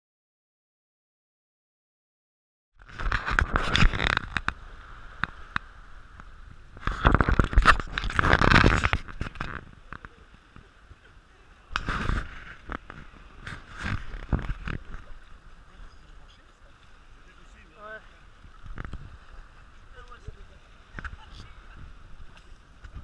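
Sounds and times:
scraping and rustling with clicks: 0:02.8 - 0:04.6, 0:05.2 - 0:10.7, 0:11.7 - 0:15.2, 0:18.6 - 0:19.2.

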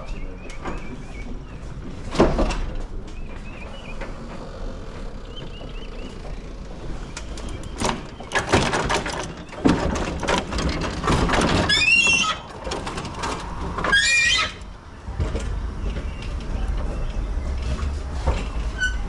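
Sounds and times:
metal hand trucks clattering: 0:05.0 - 0:19.0
short high squeals: 0:11.6 - 0:12.5, 0:13.8 - 0:14.6.

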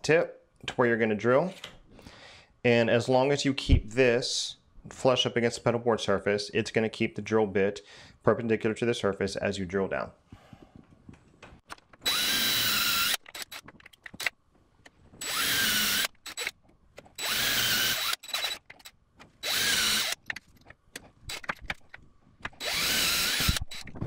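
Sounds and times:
drill boring through wood: 0:12.0 - 0:13.6, 0:15.2 - 0:16.5, 0:17.2 - 0:18.7, 0:19.4 - 0:20.2, 0:22.6 - 0:24.0.

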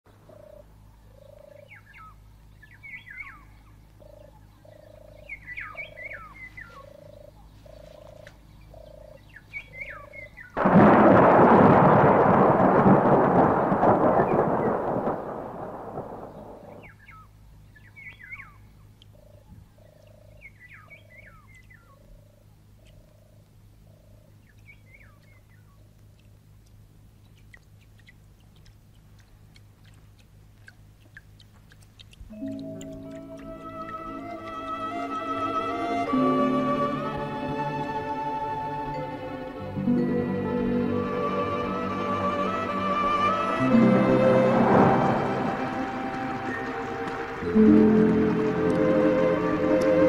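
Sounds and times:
birds chirping: 0:00.1 - 0:12.5, 0:13.1 - 0:39.6, 0:41.6 - 0:50.0
thunder clap rumbling: 0:10.6 - 0:17.0, 0:41.8 - 0:50.0.

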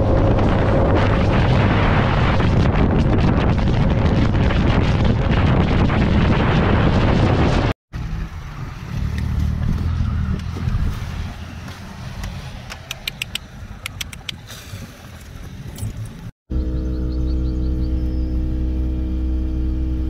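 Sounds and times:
wind buffeting microphone: 0:00.0 - 0:07.8, 0:08.9 - 0:16.3
sharp clicks: 0:12.2 - 0:14.4
car engine running: 0:15.9 - 0:20.0.

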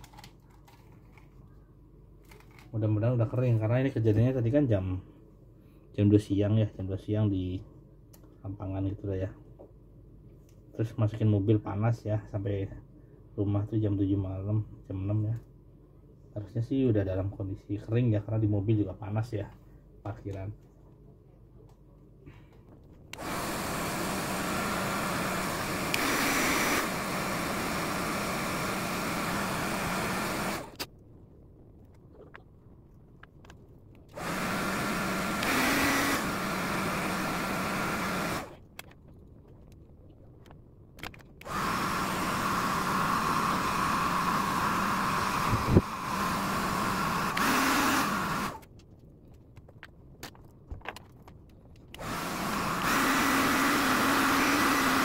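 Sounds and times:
hair dryer blowing: 0:23.2 - 0:30.8, 0:34.1 - 0:38.5, 0:41.4 - 0:48.6, 0:52.0 - 0:55.0.

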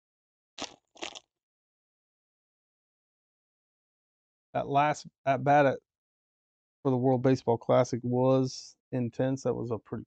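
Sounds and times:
foil wrapper tearing: 0:00.6 - 0:01.2.

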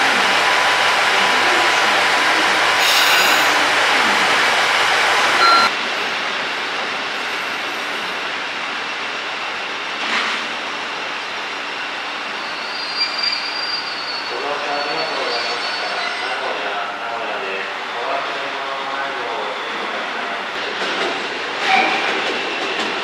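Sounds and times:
diesel railcar engines running: 0:00.0 - 0:23.0
distant train rumbling on track: 0:14.3 - 0:23.0
train clack: 0:20.5 - 0:23.0.

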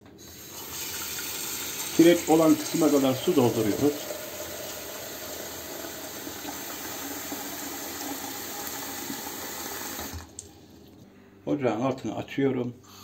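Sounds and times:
tap water filling metal teapot: 0:00.4 - 0:10.5.

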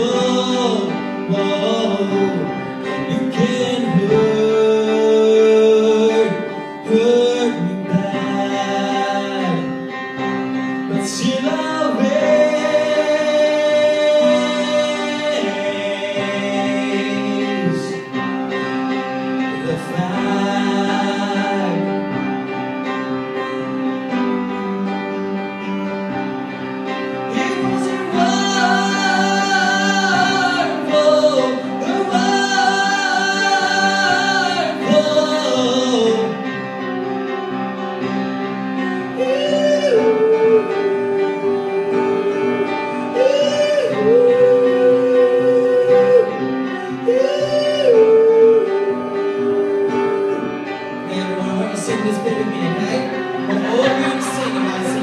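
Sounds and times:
man singing through a pa: 0:00.0 - 0:09.8, 0:27.3 - 0:36.4, 0:47.0 - 0:55.0
guitar accompaniment: 0:00.0 - 0:55.0.

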